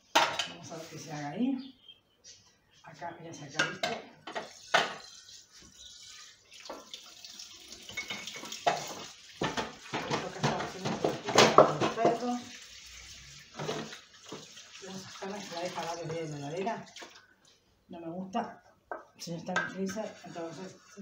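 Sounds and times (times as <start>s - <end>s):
cookware clattering against sink: 0.1s - 0.6s, 3.6s - 5.1s, 7.8s - 12.5s, 13.6s - 14.5s
frying pan being scrubbed: 4.3s - 6.5s, 8.5s - 16.6s, 19.8s - 21.0s
tap water running into sink: 4.3s - 17.2s.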